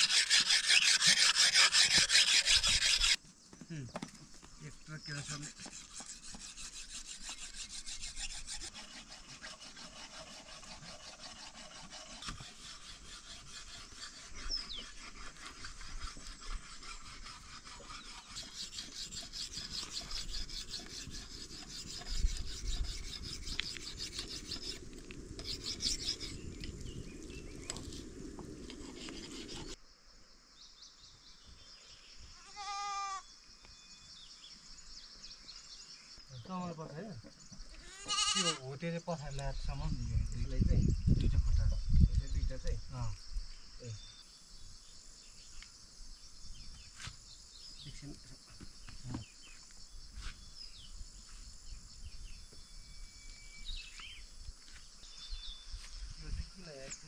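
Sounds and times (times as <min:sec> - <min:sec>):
quick hand scraping strokes: 0:00.0 - 0:03.2, 0:05.1 - 0:26.4, 0:28.6 - 0:29.8
goat bleating: 0:32.4 - 0:33.2, 0:37.8 - 0:38.6.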